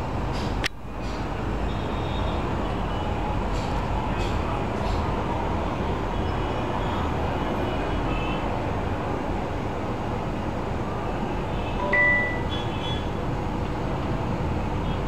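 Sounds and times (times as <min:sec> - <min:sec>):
busy road traffic: 0:00.0 - 0:15.0
faint high tones: 0:11.8 - 0:12.5.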